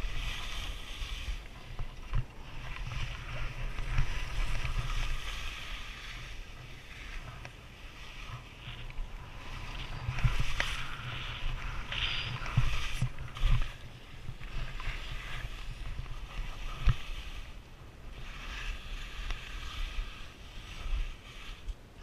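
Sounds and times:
skis knocking on bumps: 0.0s - 7.6s
skis scraping over snow: 0.0s - 22.0s
wind rumble on microphone: 0.0s - 22.0s.

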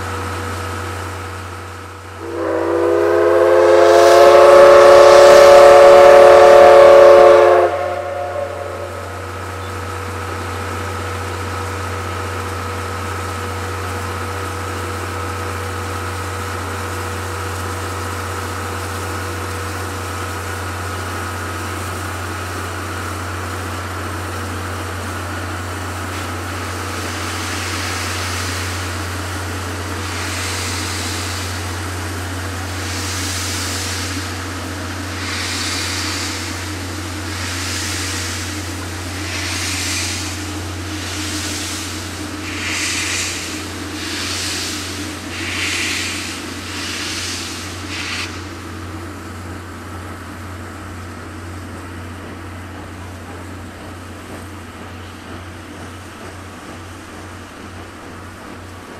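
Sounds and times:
steam locomotive whistle blast: 2.2s - 9.4s, 42.4s - 48.5s.

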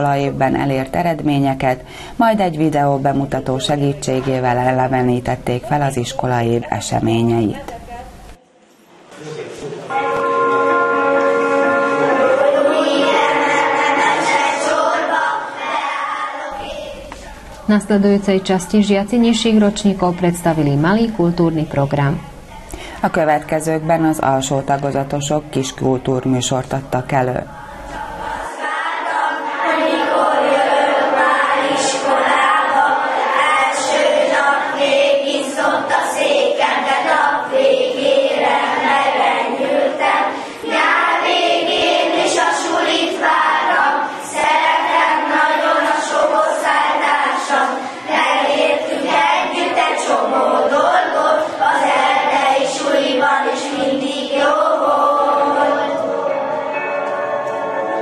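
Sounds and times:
children's choir singing: 9.9s - 17.5s, 27.4s - 58.0s.

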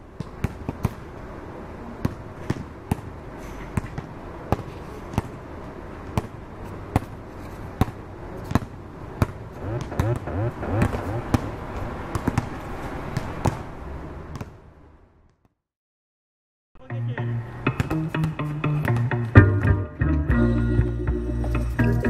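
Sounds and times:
background noise: 0.0s - 15.6s, 16.8s - 22.0s
basketball bouncing on court: 0.2s - 1.1s, 2.0s - 5.4s, 6.1s - 7.2s, 7.8s - 13.7s, 14.3s - 14.6s, 17.8s - 19.2s.

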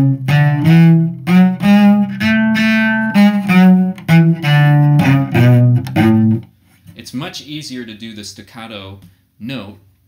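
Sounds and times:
solo cello playing: 0.0s - 6.5s.

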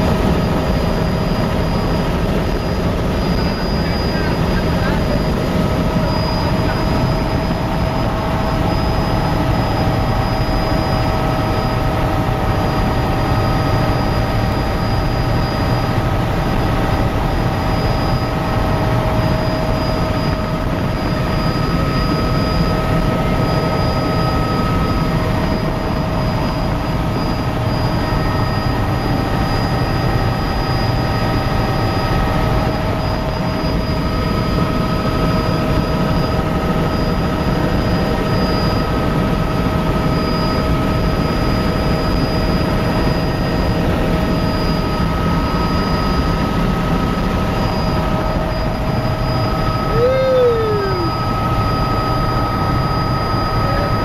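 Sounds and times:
helicopter engine and rotor drone: 0.0s - 54.0s
whining tones: 42.1s - 54.0s.

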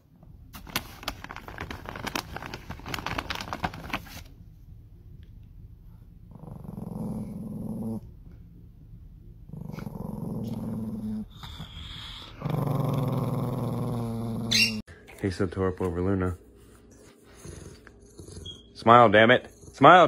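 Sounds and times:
plastic snack bag crinkling: 0.6s - 4.3s
small dog growling: 6.3s - 8.1s, 9.4s - 14.8s, 17.3s - 20.0s.

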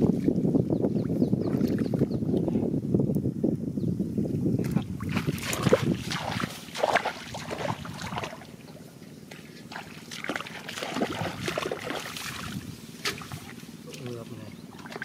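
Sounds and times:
muddy water sloshing and splashing: 1.1s - 2.1s, 4.6s - 15.0s
sharp splash: 4.7s - 8.5s, 9.4s - 14.0s, 14.7s - 15.0s.

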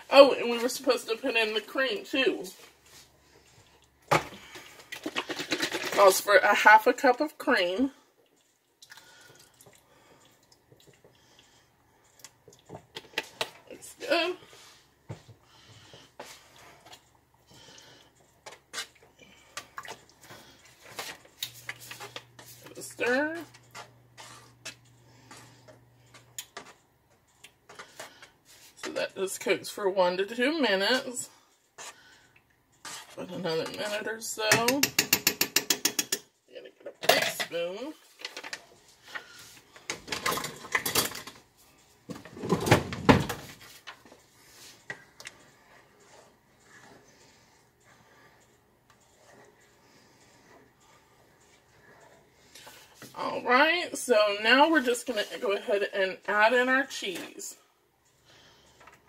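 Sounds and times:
utensil scraping cooking pot: 4.4s - 7.7s, 15.8s - 26.8s, 31.8s - 32.2s, 32.8s - 36.3s, 43.6s - 55.8s.

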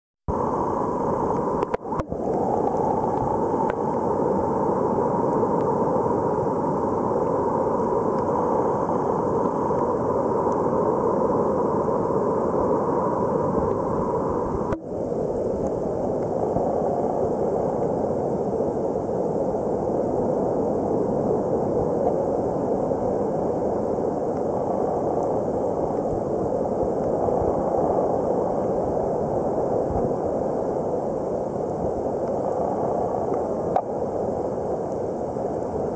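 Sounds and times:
muffled underwater rushing water: 0.3s - 35.9s.

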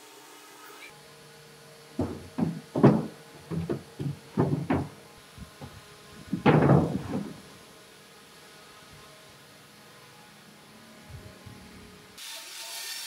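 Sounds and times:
wooden seat knocking on wood: 2.0s - 7.5s.

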